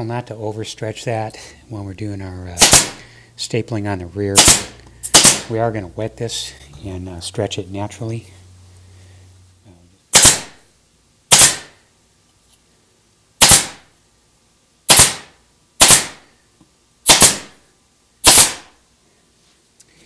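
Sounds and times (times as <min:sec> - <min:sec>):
staple gun firing: 0:02.6 - 0:03.0, 0:04.4 - 0:05.5, 0:10.2 - 0:10.5, 0:11.3 - 0:11.7, 0:13.4 - 0:13.8, 0:14.9 - 0:16.2, 0:17.1 - 0:17.5, 0:18.2 - 0:18.7.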